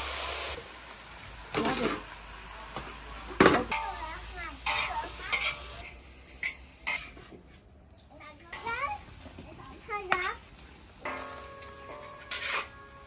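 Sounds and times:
greens sizzling: 0.0s - 13.0s
metal spatula scraping in wok: 3.7s - 7.3s, 11.0s - 13.0s.

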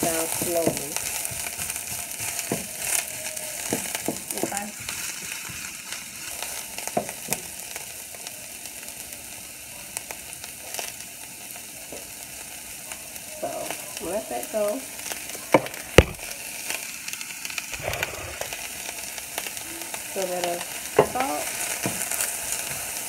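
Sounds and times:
wooden spoon knocking pan: 0.0s - 5.6s
onions sizzling in oil: 0.0s - 23.0s.

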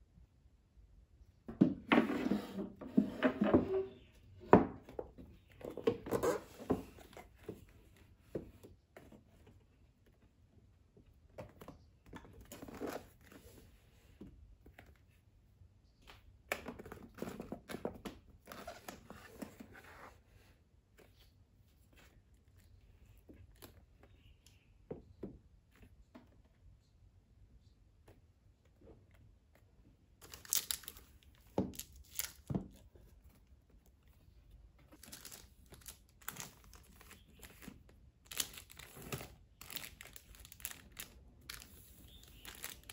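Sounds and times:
items scraping on a shelf: 1.6s - 4.3s.

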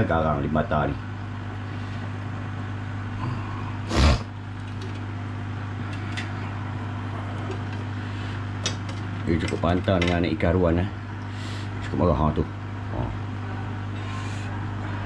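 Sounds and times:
aquarium equipment hum: 0.0s - 15.0s.

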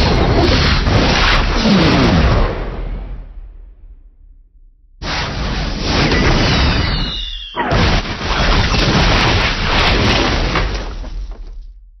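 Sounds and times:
explosion boom and rumble: 0.0s - 12.0s
descending whistle: 6.5s - 7.7s.

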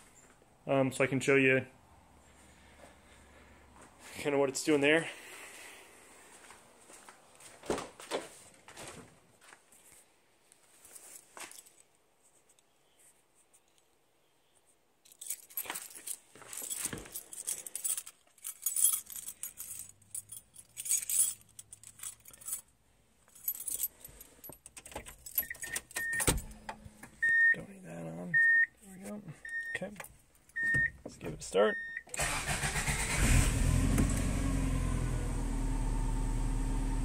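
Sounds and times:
car keys jangling: 15.0s - 26.9s, 32.1s - 33.2s.

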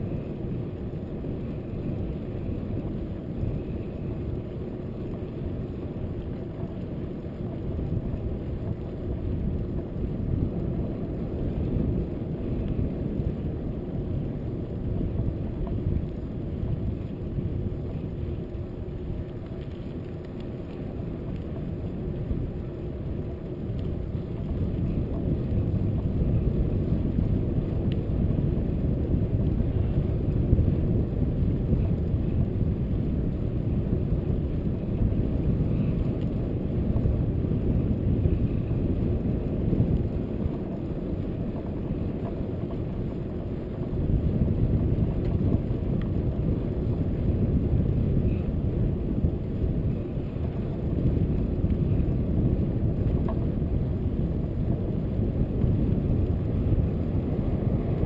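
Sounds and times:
tyre and road rumble: 0.0s - 58.0s
wind buffeting microphone: 0.0s - 58.0s.

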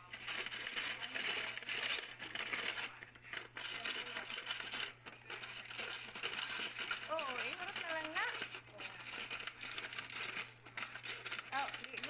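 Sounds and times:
ice shaver scraping ice: 0.0s - 12.0s.

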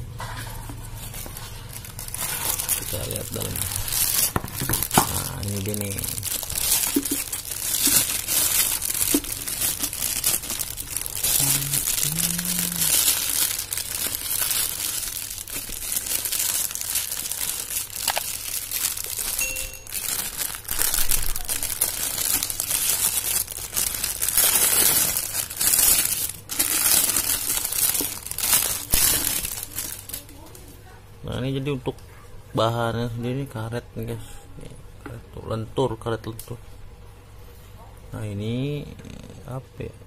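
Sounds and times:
plastic wrapping crinkling: 0.3s - 30.8s.

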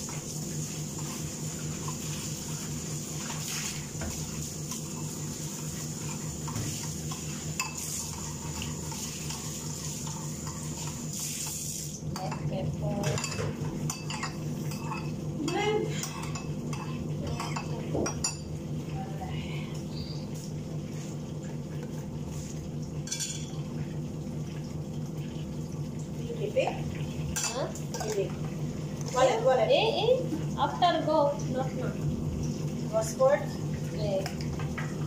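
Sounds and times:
steady low hum: 0.0s - 35.0s
dishes and cutlery clattering: 12.2s - 18.5s, 23.0s - 23.6s.

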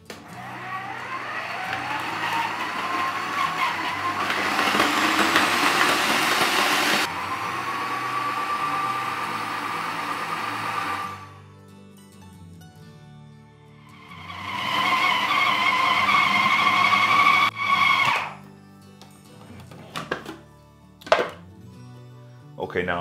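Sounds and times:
food processor motor whining: 0.0s - 11.4s, 13.9s - 18.4s.

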